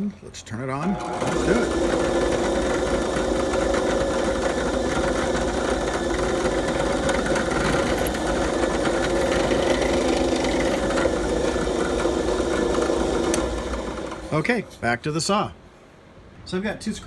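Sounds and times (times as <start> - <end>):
drill bit boring wood: 0.8 - 14.4
drill press humming: 0.8 - 14.7.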